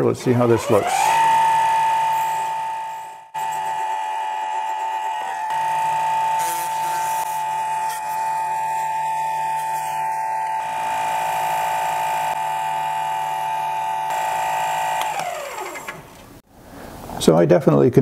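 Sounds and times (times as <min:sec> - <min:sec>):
lathe whining: 0:00.0 - 0:16.4
abrasive pad rubbing on metal: 0:03.3 - 0:12.4.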